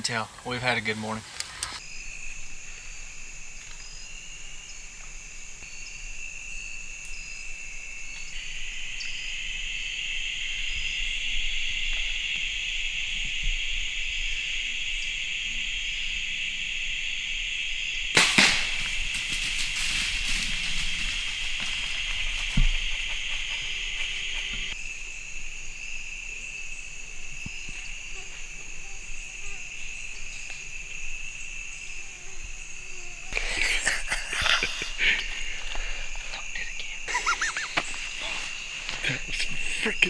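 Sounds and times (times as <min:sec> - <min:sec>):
insects buzzing: 0:00.0 - 0:40.0
bow shot snap: 0:18.2 - 0:19.7.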